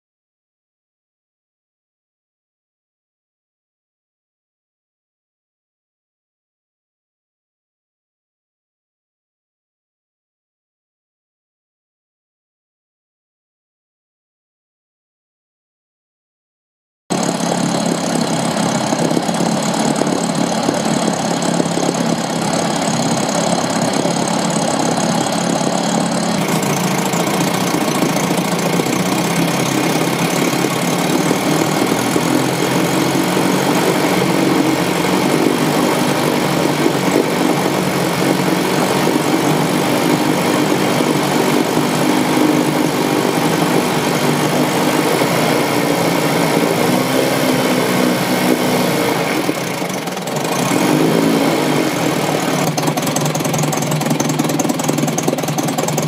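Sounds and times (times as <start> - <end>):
outboard motor running: 17.1 - 56.0.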